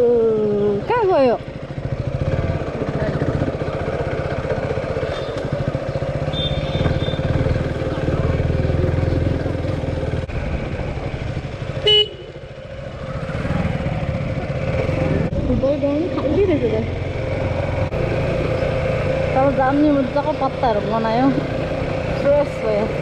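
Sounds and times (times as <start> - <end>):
motorcycle engine running: 0.0 - 23.0
horn toot: 6.3 - 7.3, 11.8 - 12.3.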